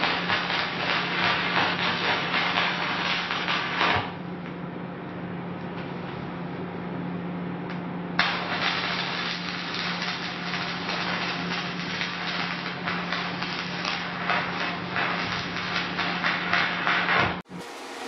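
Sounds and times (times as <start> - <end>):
welding arc crackling hiss: 0.0 - 4.2, 8.2 - 18.0
steady low hum: 0.0 - 18.0.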